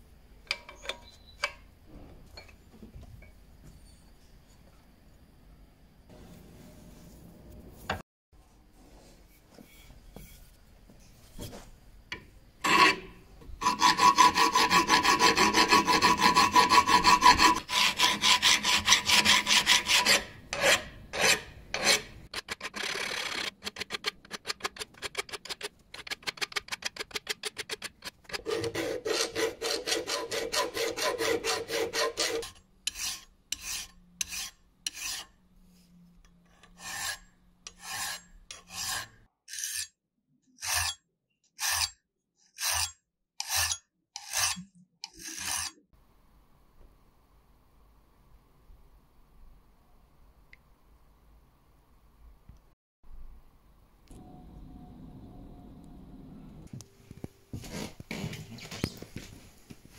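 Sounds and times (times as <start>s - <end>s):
metal file scraping on metal: 12.6s - 24.1s, 27.1s - 35.4s, 36.4s - 40.0s, 40.6s - 41.0s, 41.6s - 45.8s.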